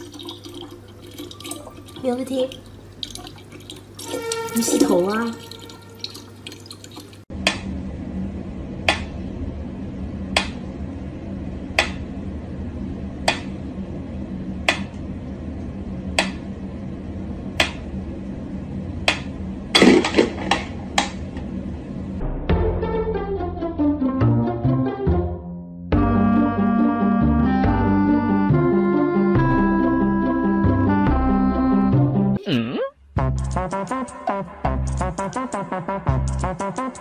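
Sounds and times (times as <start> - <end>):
steady low hum: 7.3 - 22.6.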